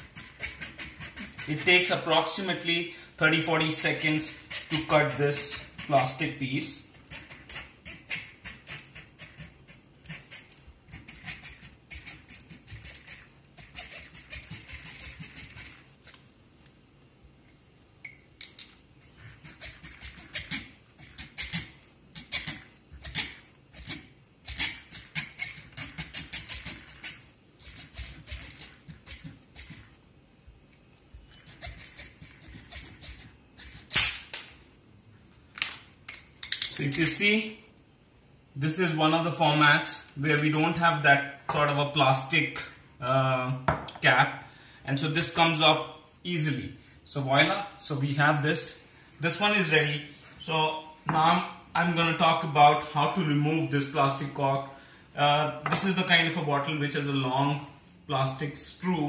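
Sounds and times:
knife scraping plastic seal: 0.0 - 2.0, 6.9 - 16.2.

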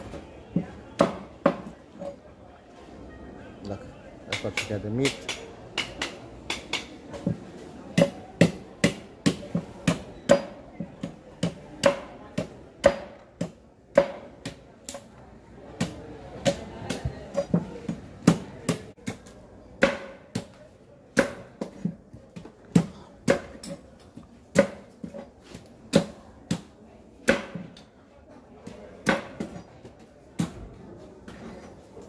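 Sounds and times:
machete chopping coconut: 4.3 - 7.4, 8.0 - 15.1, 15.7 - 21.8, 22.7 - 23.8, 24.5 - 27.8, 28.7 - 29.6.

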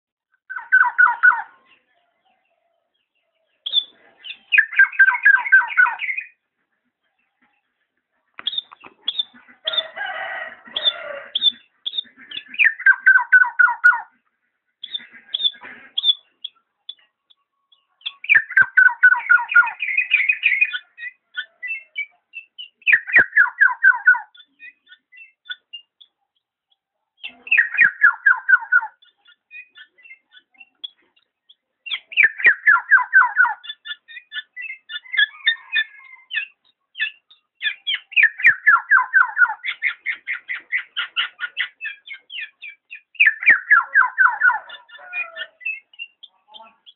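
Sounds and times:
short bird chirps: 8.4 - 9.8.

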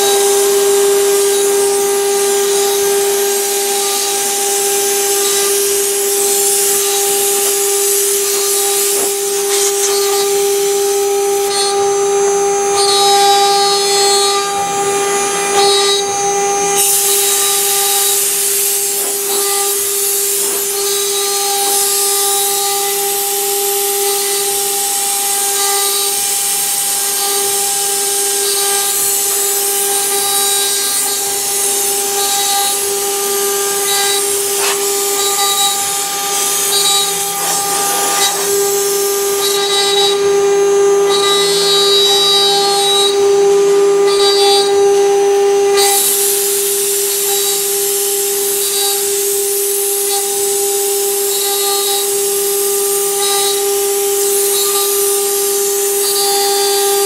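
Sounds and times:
wood router spindles whining: 0.0 - 57.0
hissing cutting noise: 3.3 - 11.8, 15.0 - 40.3.

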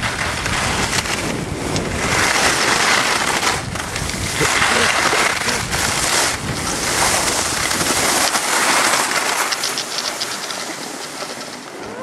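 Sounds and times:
skis hissing on snow: 0.0 - 11.4
wind buffeting microphone: 0.0 - 12.0
light ticks: 7.6 - 12.0.

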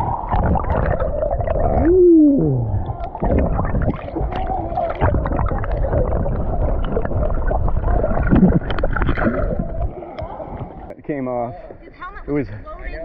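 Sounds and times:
underwater river rushing and gurgling: 0.0 - 11.0.

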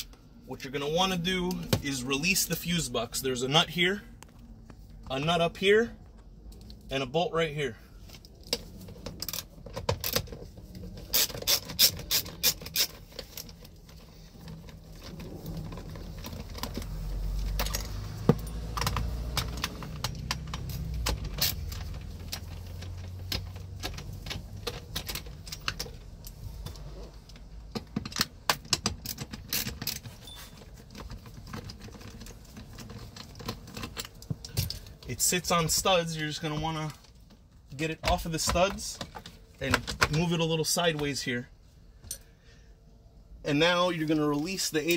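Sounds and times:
hand ratchet clicking: 11.1 - 13.0
low rumble of handling: 13.0 - 44.9.

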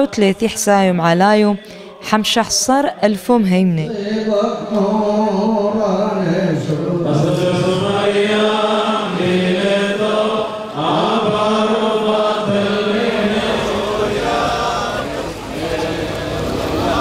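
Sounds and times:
men chanting: 3.9 - 17.0.

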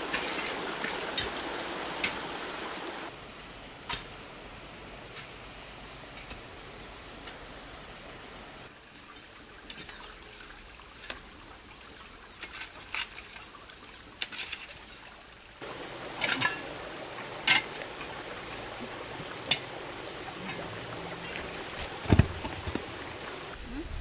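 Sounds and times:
hoes and shovel scraping soil: 0.0 - 2.3, 12.3 - 14.8.

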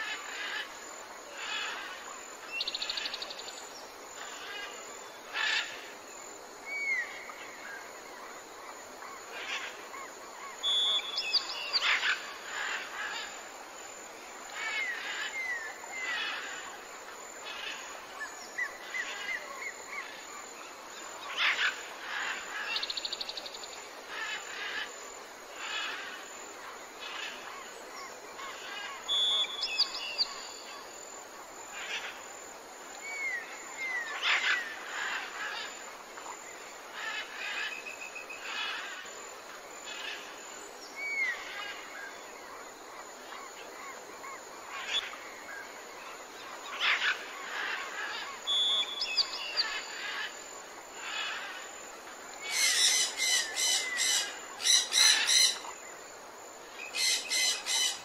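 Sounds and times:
steady hiss: 0.0 - 58.0
small birds chirping and calling: 46.7 - 50.3, 52.4 - 55.8, 56.9 - 58.0.

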